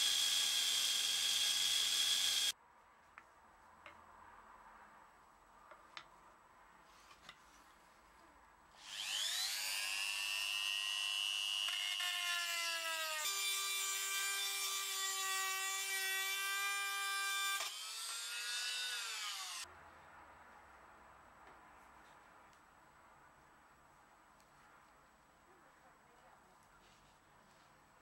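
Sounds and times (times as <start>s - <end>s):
rotary tool whining cutting steel: 0.0s - 2.5s, 8.8s - 10.2s.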